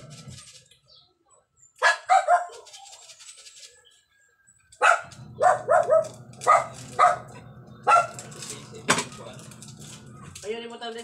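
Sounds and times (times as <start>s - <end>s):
dog barking: 1.8s - 2.7s, 4.8s - 8.2s.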